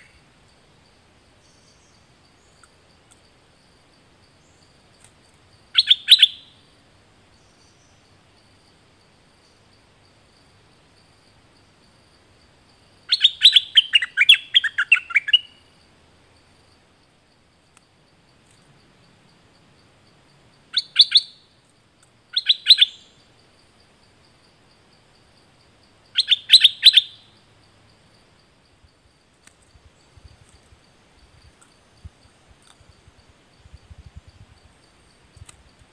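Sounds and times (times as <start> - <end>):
bird singing: 0.0 - 2.9, 4.2 - 4.8, 5.5 - 8.7, 13.0 - 15.9, 20.6 - 21.7, 22.3 - 23.4, 26.0 - 28.2.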